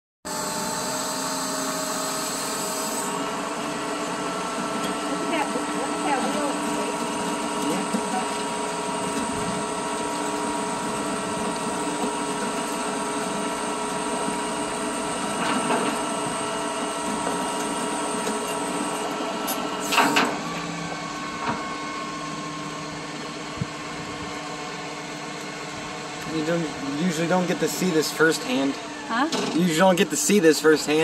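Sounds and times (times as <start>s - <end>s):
winch whining: 0.3s - 23.4s.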